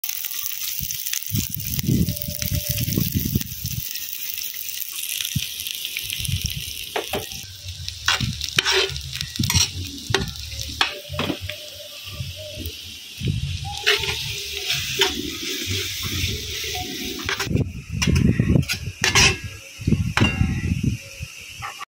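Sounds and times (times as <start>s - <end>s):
onions sizzling in hot oil: 0.0s - 21.8s
metal spatula scraping pan: 8.0s - 11.4s, 13.8s - 19.5s
low rumble: 12.1s - 20.9s.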